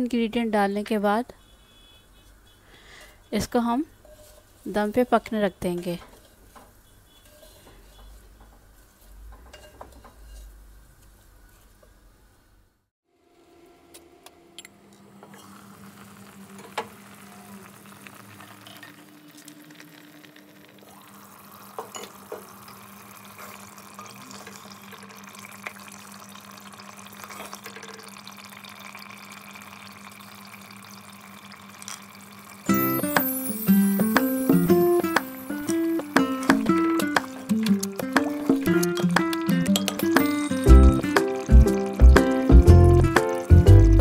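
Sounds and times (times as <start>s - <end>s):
curry bubbling in a pot: 15.4s - 32.7s.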